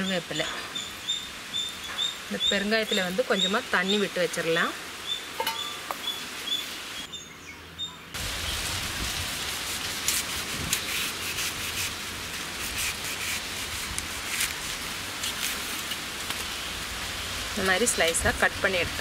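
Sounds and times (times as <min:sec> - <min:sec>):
background hiss: 0:00.0 - 0:07.6
birds chirping faintly: 0:00.0 - 0:09.0
knife scraping yam skin: 0:09.7 - 0:16.4.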